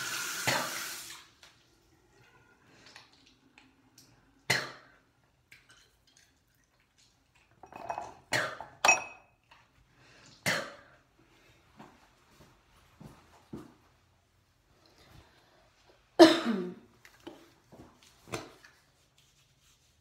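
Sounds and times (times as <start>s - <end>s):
dishes and cutlery clinking: 7.6s - 9.4s.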